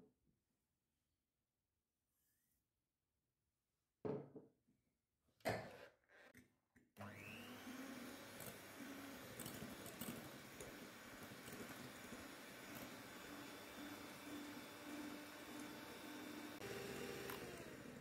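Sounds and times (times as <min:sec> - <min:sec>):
electric hand mixer whirring: 0:07.0 - 0:18.0
beaters whisking eggs: 0:07.5 - 0:18.0.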